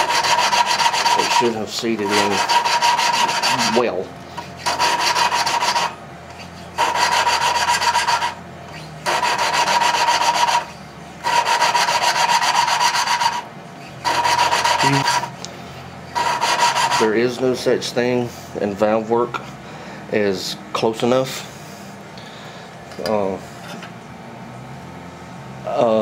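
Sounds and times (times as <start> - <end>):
gritty valve grinding with ringing: 0.0 - 15.3, 16.1 - 17.4.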